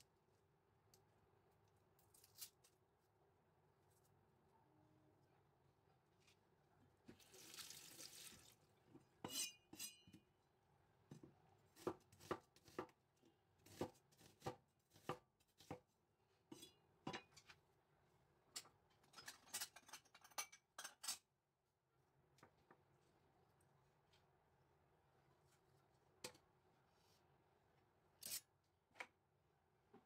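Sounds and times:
knife chopping on wooden board: 0:11.8 - 0:13.0.

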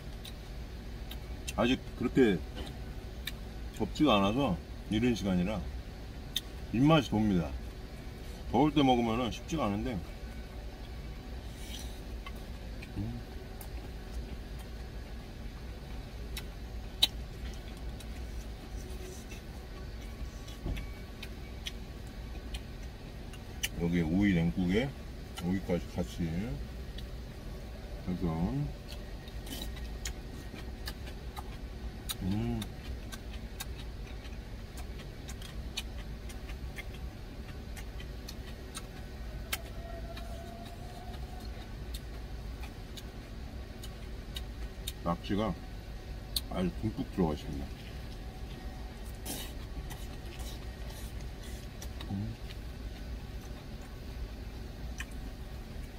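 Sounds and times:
low rumble in truck cab: 0:00.0 - 0:55.9.

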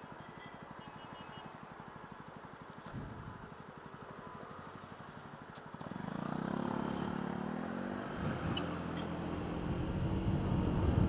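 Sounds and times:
scooter engine accelerating: 0:05.8 - 0:11.0.

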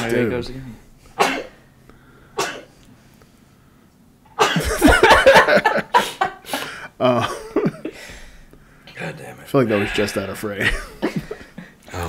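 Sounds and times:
man coughing hard: 0:01.2 - 0:01.6, 0:02.4 - 0:02.7, 0:04.3 - 0:06.1, 0:07.1 - 0:08.0, 0:09.7 - 0:11.5.

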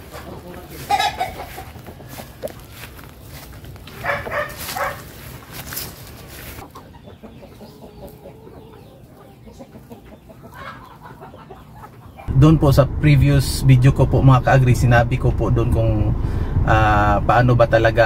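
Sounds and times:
chickens clucking: 0:00.0 - 0:12.3.

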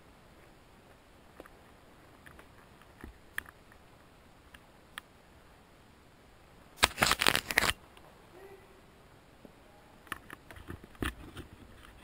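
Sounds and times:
twigs snapping underfoot: 0:06.8 - 0:07.8
cloth rubbing against microphone: 0:10.5 - 0:12.0.

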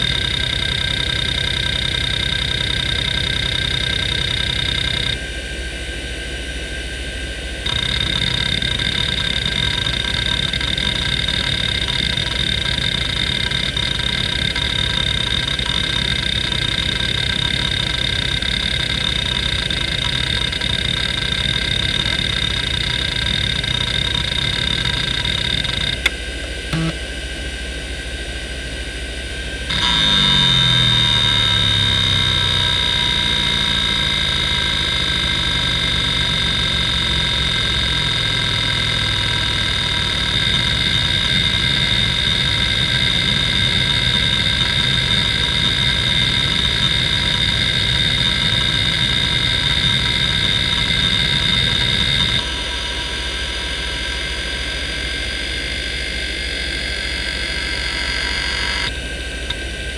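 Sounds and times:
hard drive heads seeking chatter: 0:00.0 - 0:05.2, 0:07.6 - 0:27.0, 0:29.7 - 0:52.8
hard drive spindle whine: 0:00.0 - 0:59.9.

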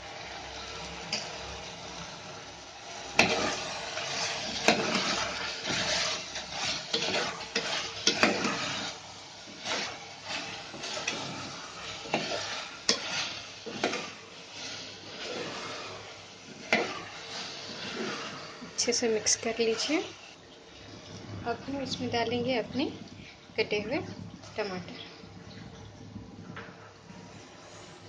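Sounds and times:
food sizzling in oil: 0:00.0 - 0:20.7
spoon scraping metal pot: 0:03.2 - 0:20.0.

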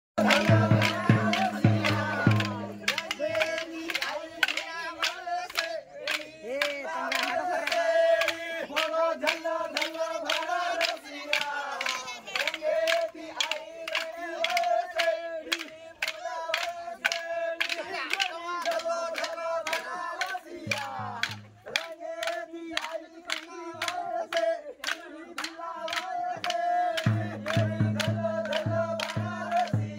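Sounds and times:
sharp rhythmic strikes: 0:00.2 - 0:05.6, 0:12.8 - 0:22.4, 0:25.4 - 0:29.9
group chanting in unison: 0:00.2 - 0:29.9.

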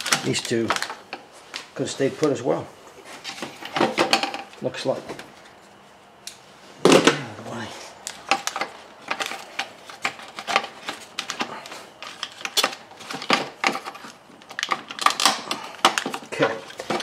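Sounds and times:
hard plastic clicking and clattering: 0:08.0 - 0:17.0.

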